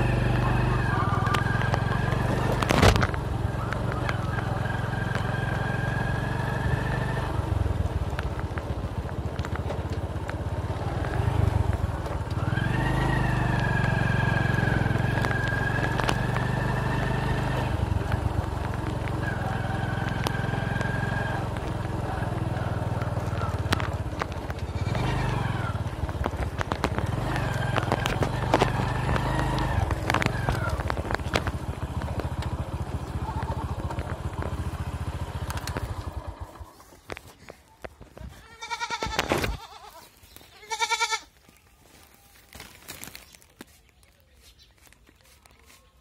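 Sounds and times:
motorcycle engine running: 0.0 - 41.2
goat bleating: 24.6 - 25.6, 33.1 - 34.0, 38.2 - 41.4.

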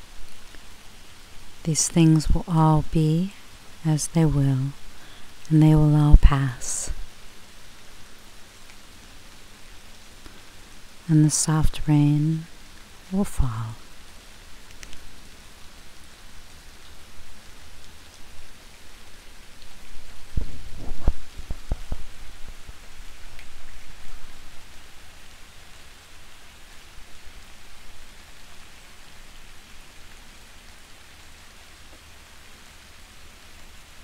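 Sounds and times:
soft rain falling: 0.0 - 34.0.

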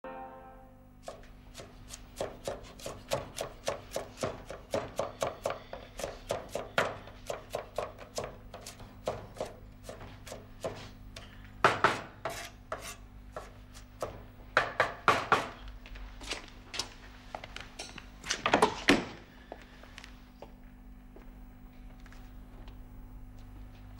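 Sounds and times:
knife chopping onion on wooden board: 1.0 - 15.6.

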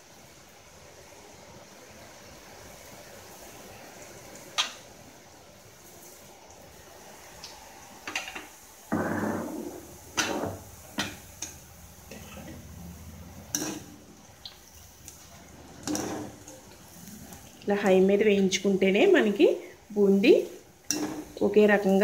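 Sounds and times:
batter frying in hot oil: 0.0 - 22.0
metal utensils clattering: 13.5 - 14.0, 15.7 - 16.6, 20.9 - 21.4.

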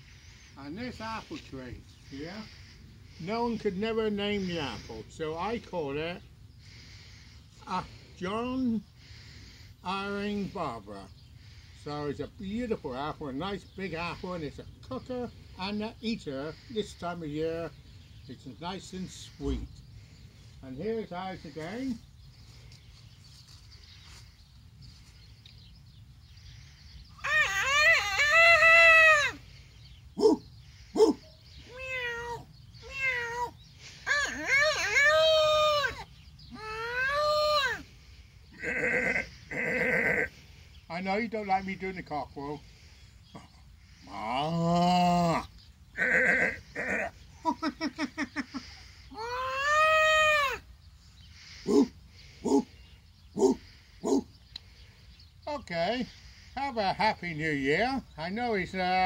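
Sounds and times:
man doing animal calls: 27.1 - 29.6, 30.2 - 40.6, 43.3 - 50.6, 51.4 - 54.3
man yelping: 27.2 - 29.4, 30.2 - 30.4, 31.0 - 37.8, 49.1 - 50.6, 51.7 - 52.7, 53.4 - 54.3
man imitating cat meows: 31.7 - 33.5.

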